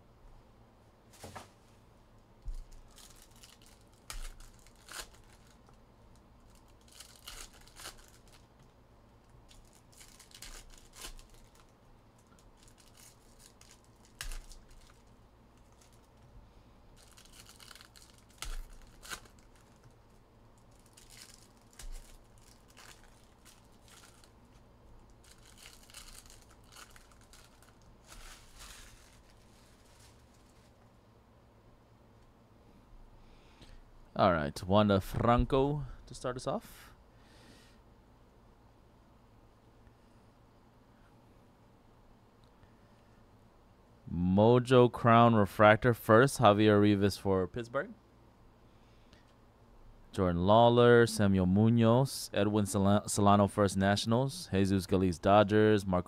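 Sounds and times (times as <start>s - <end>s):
wrappers crinkling: 2.5s - 8.5s, 9.4s - 16.2s, 17.0s - 30.8s
cards being handled: 12.7s - 16.2s, 17.0s - 19.9s, 20.7s - 24.3s, 25.2s - 30.8s.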